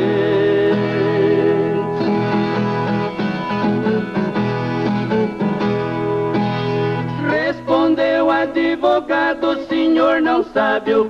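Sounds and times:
plucked guitar notes: 0:00.0 - 0:08.2.

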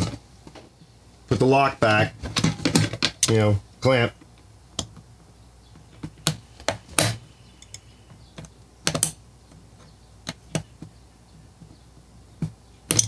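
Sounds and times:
small parts clicking and clacking: 0:06.0 - 0:07.8.

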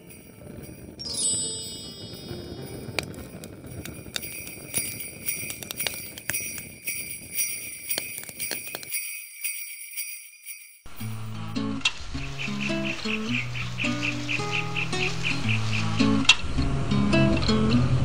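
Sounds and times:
sleigh bells jingling: 0:00.0 - 0:16.0
music with plucked notes: 0:11.0 - 0:18.0.

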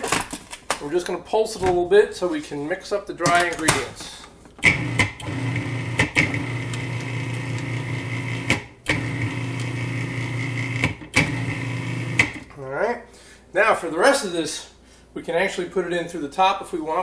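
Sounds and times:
food processor motor humming: 0:04.6 - 0:12.4.

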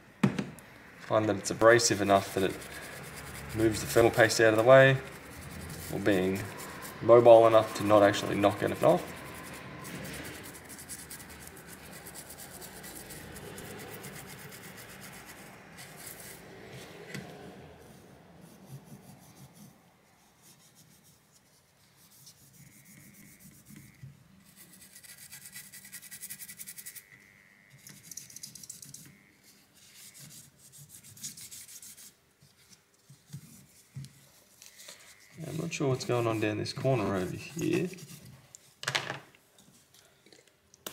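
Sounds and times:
toothbrush scrubbing circuit board: 0:01.6 - 0:16.4, 0:22.1 - 0:32.2, 0:34.7 - 0:38.2.

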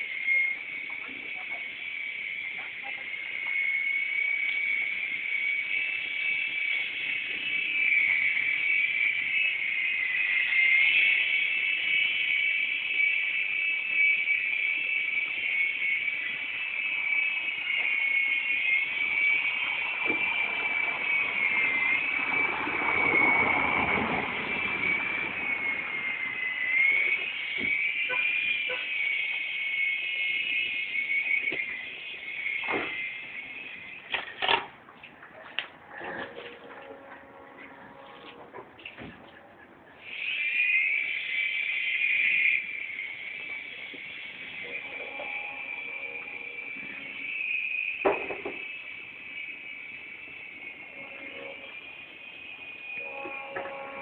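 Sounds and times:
rushing noise: 0:00.0 - 0:34.0
rc helicopter high whine: 0:00.0 - 0:34.2, 0:40.0 - 0:54.0.

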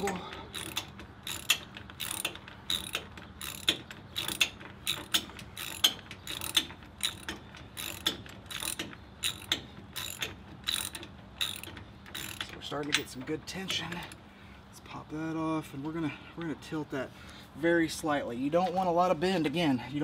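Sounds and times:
ratchet wrench clicking: 0:00.0 - 0:13.2.

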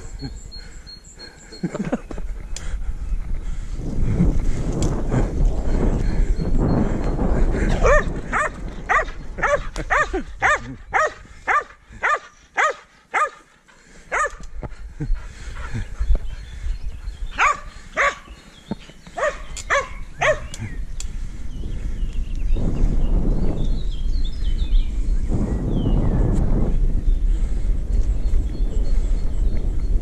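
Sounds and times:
wind: 0:00.0 - 0:30.0
bicycle rolling noise: 0:02.1 - 0:10.5, 0:13.8 - 0:30.0
dog barking: 0:07.8 - 0:13.5, 0:14.1 - 0:14.4, 0:17.4 - 0:18.3, 0:19.2 - 0:20.5.

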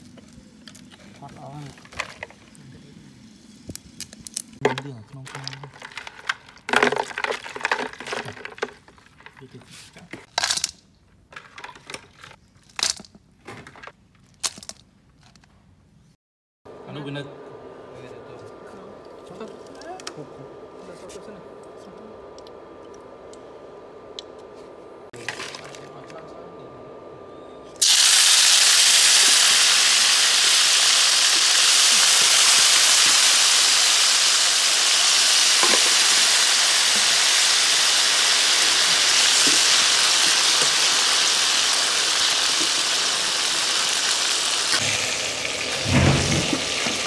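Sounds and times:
beetles sizzling in hot oil: 0:27.8 - 0:47.0.

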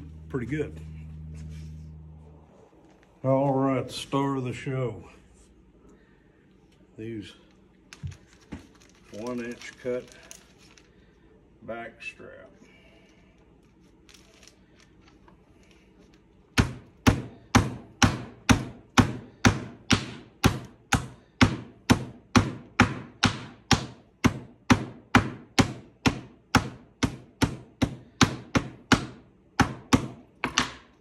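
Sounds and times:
meat mallet pounding steak: 0:16.6 - 0:30.8.

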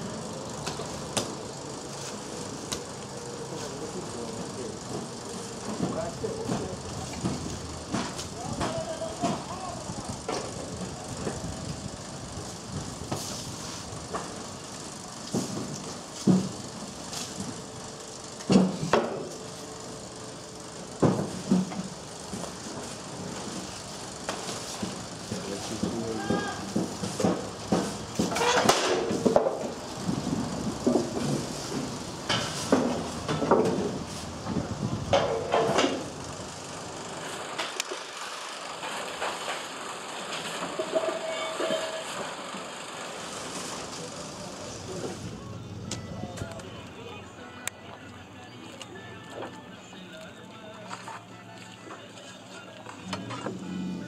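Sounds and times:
metal clanks and knocks: 0:25.8 - 0:29.6, 0:35.1 - 0:36.0, 0:40.6 - 0:42.1
metallic ring: 0:40.8 - 0:42.2.

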